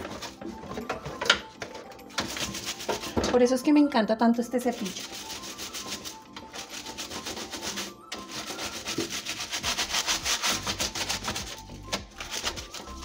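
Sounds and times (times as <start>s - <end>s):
brush scrubbing glass shelf: 2.2s - 3.2s, 4.7s - 13.0s.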